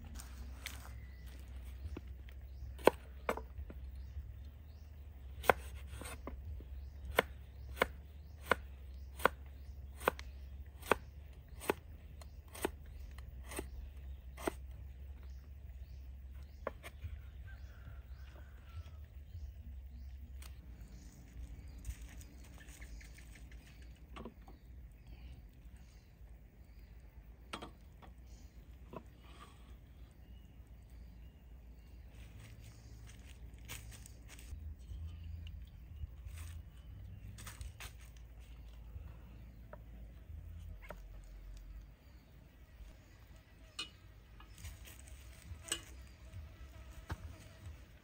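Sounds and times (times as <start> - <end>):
knife chopping on wooden board: 2.8 - 3.5, 5.4 - 6.4, 7.1 - 10.2.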